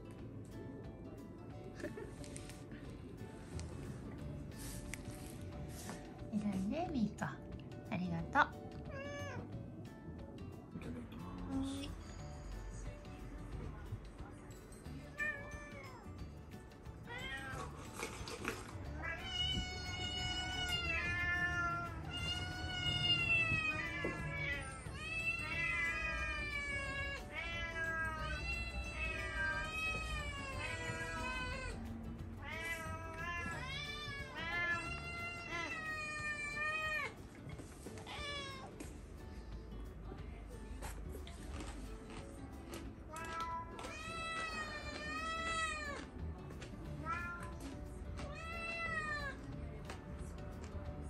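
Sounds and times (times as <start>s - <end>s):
cats meowing: 8.7s - 9.6s, 15.0s - 39.0s, 42.7s - 49.8s.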